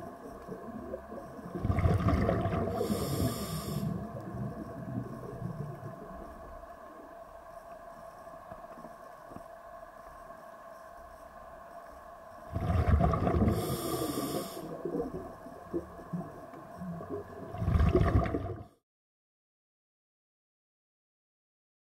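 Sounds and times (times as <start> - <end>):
water surging against camera: 0.0 - 6.1, 12.5 - 15.8
steady hum: 0.0 - 17.8.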